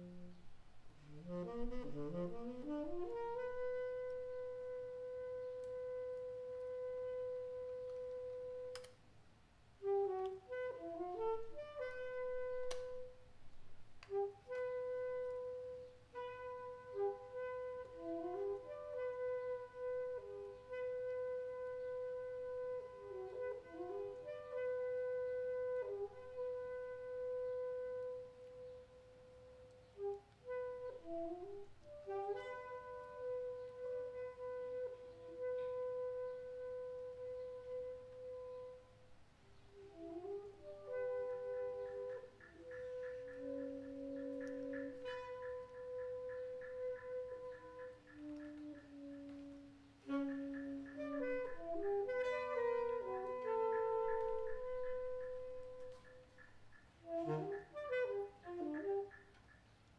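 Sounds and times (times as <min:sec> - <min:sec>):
jazz woodwinds short phrases: 0:00.0 - 0:08.9, 0:09.8 - 0:13.3, 0:14.0 - 0:39.0, 0:39.6 - 0:56.4, 0:57.0 - 0:59.3
saxophone holding long note: 0:00.0 - 0:08.9, 0:09.8 - 0:13.3, 0:39.7 - 0:56.1, 0:57.1 - 0:59.2.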